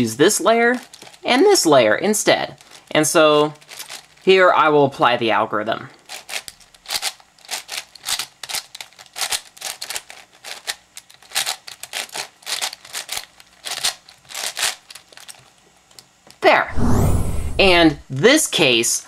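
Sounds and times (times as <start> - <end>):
puzzle cube plastic clicks: 6.1 - 15.4.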